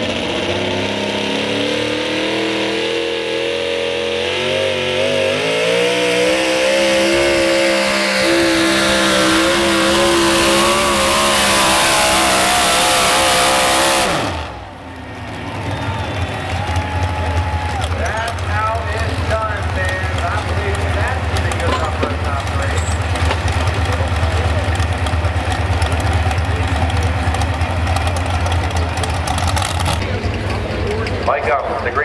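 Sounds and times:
truck engine roaring under load: 0:00.0 - 0:32.0
engine idling: 0:06.8 - 0:32.0.

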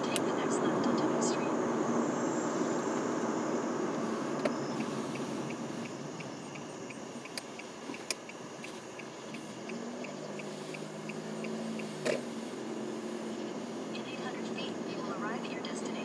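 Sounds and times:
car cabin and road noise: 0:00.0 - 0:16.0
car turn signal ticking: 0:04.4 - 0:12.3
sharp clicks: 0:04.4 - 0:12.3.

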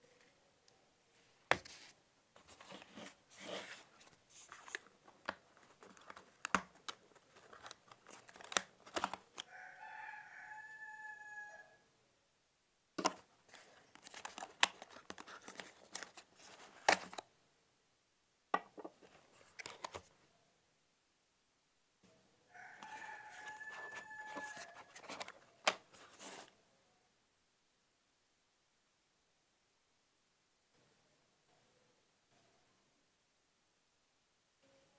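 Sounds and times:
cardboard and plastic handling: 0:01.5 - 0:09.5, 0:13.0 - 0:17.2, 0:18.6 - 0:20.1, 0:22.7 - 0:26.5.

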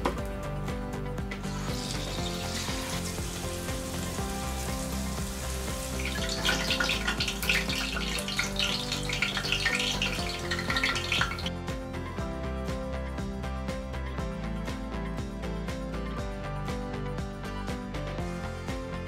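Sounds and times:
prawns deep-frying in oil: 0:01.4 - 0:11.5.

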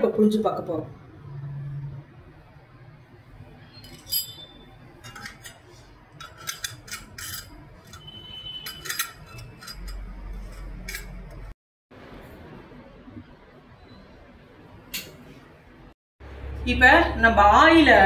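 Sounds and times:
metal utensils clinking: 0:03.7 - 0:11.5.

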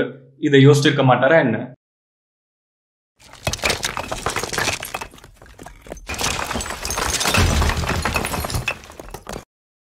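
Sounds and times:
falling debris: 0:03.2 - 0:09.5
stone cracking: 0:03.2 - 0:09.5.

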